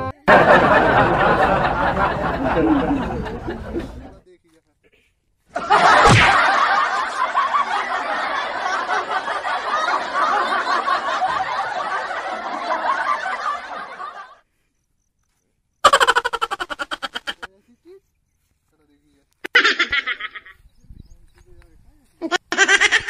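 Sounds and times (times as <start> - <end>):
crowd laughing: 0.2 - 4.2, 5.5 - 14.4, 15.8 - 17.5, 19.5 - 20.5, 22.3 - 23.0
thud: 5.9 - 6.4.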